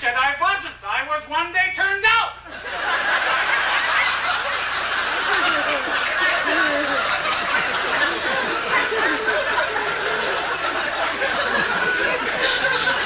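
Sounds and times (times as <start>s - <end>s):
audience laughing: 2.5s - 13.0s
people chattering: 3.9s - 13.0s.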